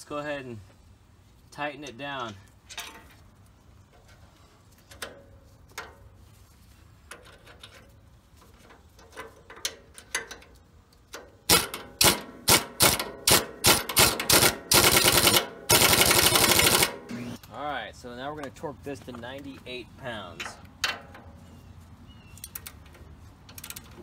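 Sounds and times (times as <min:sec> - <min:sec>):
pneumatic impact wrench hammering: 0:11.4 - 0:17.4.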